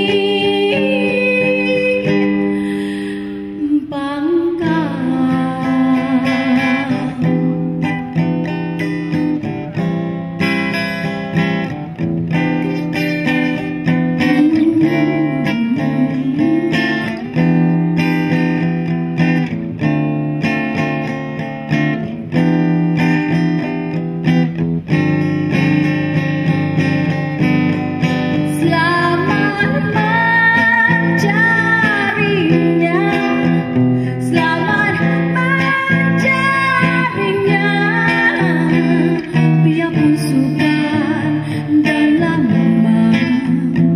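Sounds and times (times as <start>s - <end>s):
woman singing: 0.0s - 9.5s, 12.6s - 18.7s, 28.0s - 43.9s
acoustic guitar strumming: 0.0s - 43.9s.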